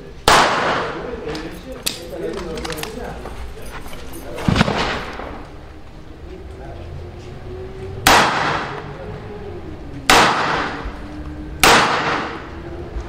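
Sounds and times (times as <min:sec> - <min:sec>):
pistol shots with echo: 0:00.2 - 0:01.2, 0:08.0 - 0:08.8, 0:10.1 - 0:10.8, 0:11.6 - 0:12.5.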